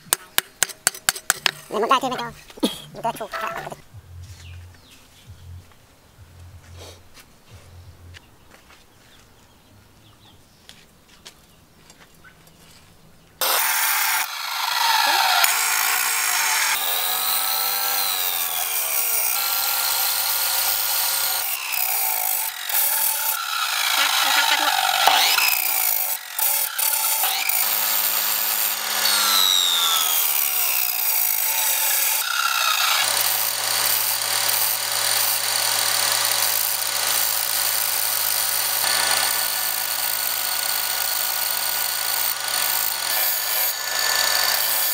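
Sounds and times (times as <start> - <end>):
bench grinder grinding steel: 13.4 - 44.9.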